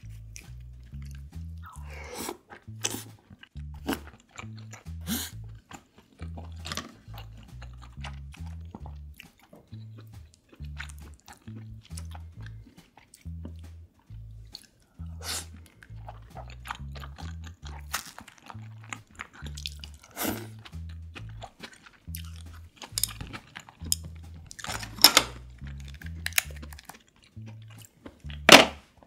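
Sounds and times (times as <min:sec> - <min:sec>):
background music with bass line: 0:00.0 - 0:29.0
chewing and crunching: 0:00.0 - 0:29.0
crab shell cracking: 0:16.3 - 0:20.1, 0:21.2 - 0:28.8.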